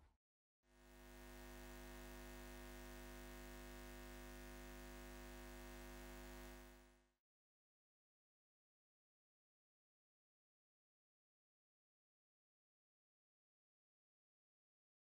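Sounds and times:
faint electrical hum: 0.9 - 6.9.

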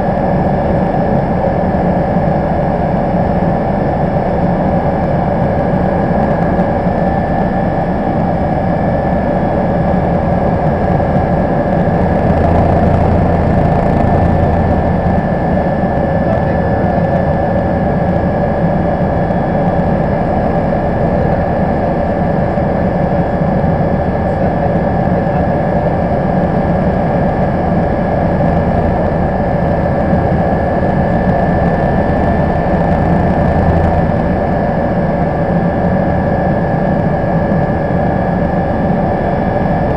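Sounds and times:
helicopter cabin drone: 0.0 - 39.9
high engine whine: 0.0 - 39.9.

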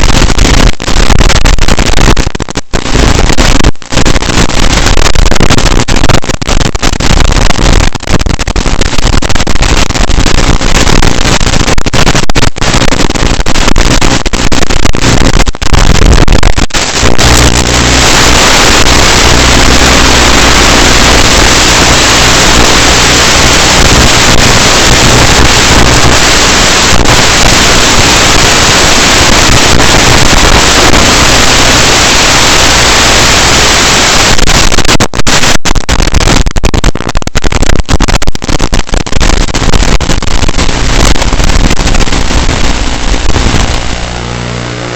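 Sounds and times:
static hiss and crackle: 0.0 - 44.9
low hum: 42.8 - 44.9.

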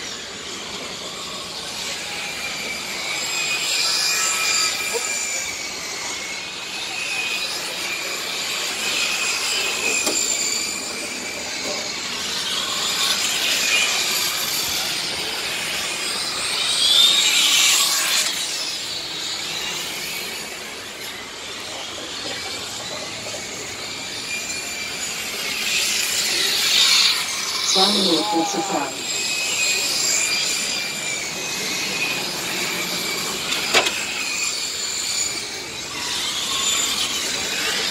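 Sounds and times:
toy truck motors whining: 0.0 - 37.9.

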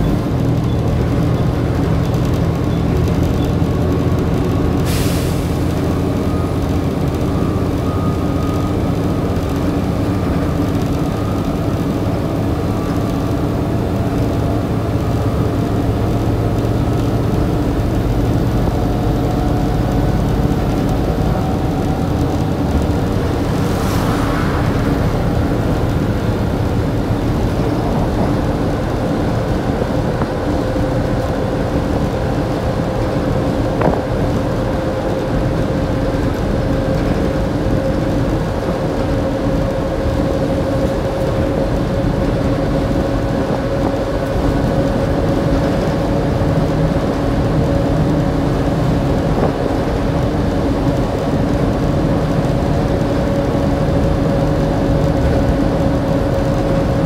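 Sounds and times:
bus diesel engine running: 0.0 - 57.0
road noise: 0.0 - 57.0
faint rising whine: 17.4 - 32.2
brief hiss: 23.3 - 26.3.

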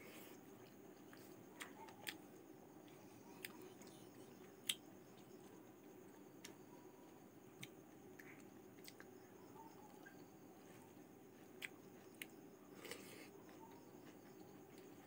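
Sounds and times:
soft clicks of hand eating: 0.6 - 5.3, 7.6 - 9.2, 11.6 - 14.9.

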